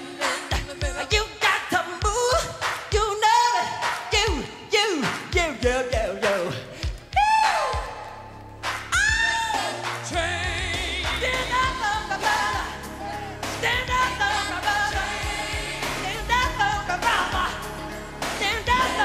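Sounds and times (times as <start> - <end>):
man singing ad-libs: 0.0 - 6.8, 9.6 - 12.4
band playing a steady beat: 3.8 - 7.9, 8.5 - 19.0
backing choir singing: 9.5 - 19.0.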